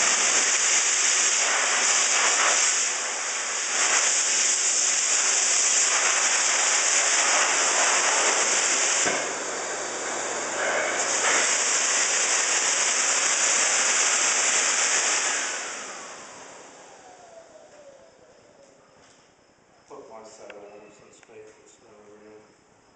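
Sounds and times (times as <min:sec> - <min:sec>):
grooming machine air hissing: 0:00.0 - 0:16.1.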